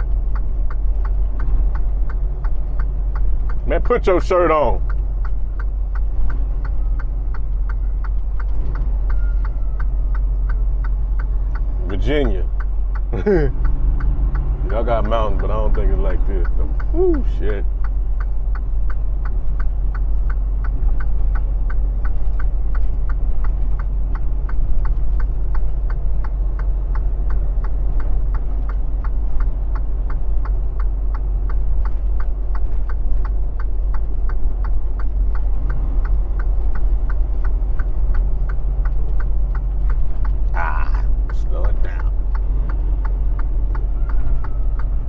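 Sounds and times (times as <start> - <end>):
fast even ticking: 0.0 - 45.0
truck engine and road noise: 0.0 - 45.0.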